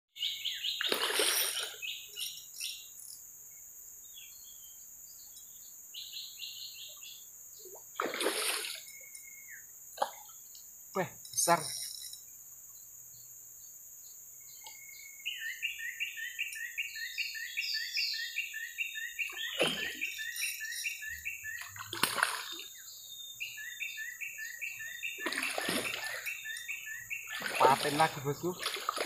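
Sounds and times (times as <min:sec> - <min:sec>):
fish splashing at the surface: 0:00.8 - 0:01.8, 0:08.0 - 0:08.9, 0:19.6 - 0:20.0, 0:21.7 - 0:22.6, 0:25.2 - 0:26.3, 0:27.3 - 0:29.0.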